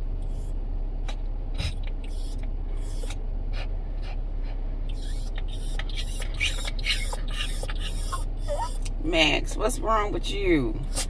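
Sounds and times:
low hum inside car: 0:00.0 - 0:11.0
dog panting: 0:01.6 - 0:08.9.

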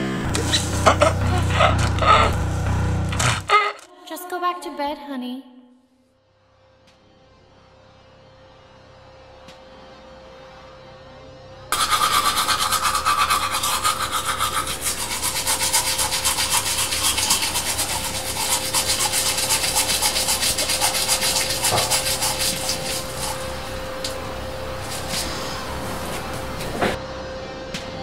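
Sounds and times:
toothbrush scrubbing teeth: 0:00.6 - 0:02.4, 0:11.7 - 0:26.9.

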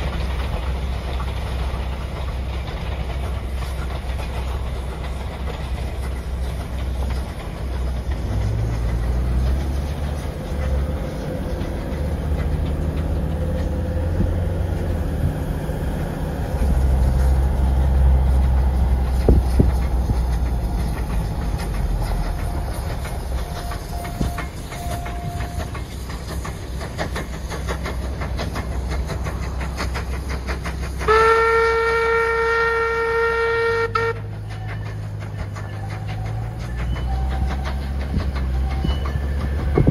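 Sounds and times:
train low rumble: 0:00.0 - 0:39.9
wheels clicking over rail joints: 0:00.0 - 0:39.9
steam whistle blast: 0:31.1 - 0:34.3.

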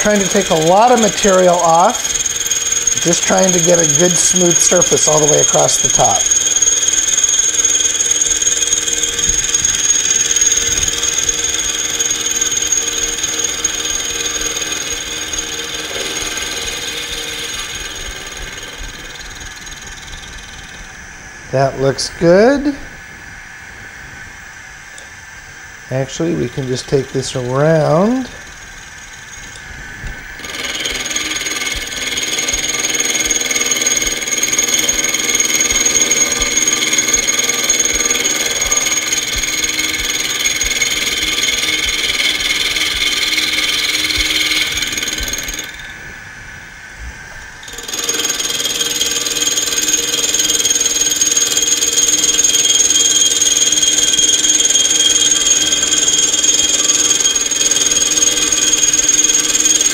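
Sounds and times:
milling machine whine and cutting: 0:00.0 - 0:59.9.

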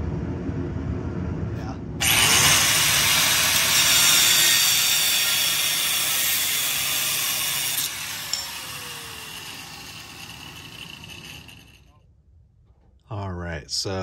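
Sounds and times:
angle grinder grinding steel: 0:02.0 - 0:11.9
grinder disc spinning down: 0:02.0 - 0:11.9.

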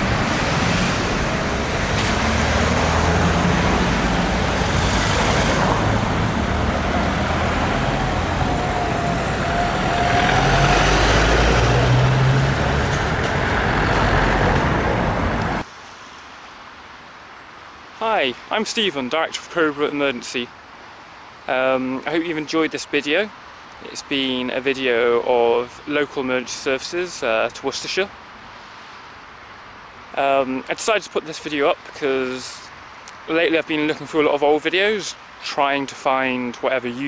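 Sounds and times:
road traffic passing: 0:00.0 - 0:18.0.

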